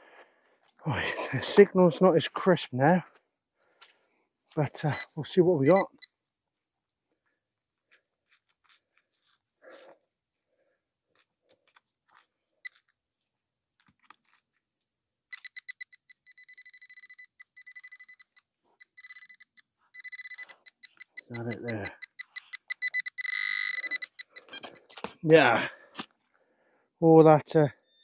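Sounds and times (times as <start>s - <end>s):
metal detector pulsing beep: 4.8s - 6.1s, 15.3s - 25.1s.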